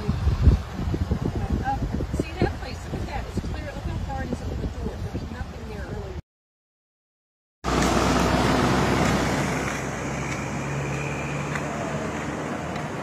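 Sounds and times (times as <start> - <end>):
flooding river rushing: 7.7 - 13.0.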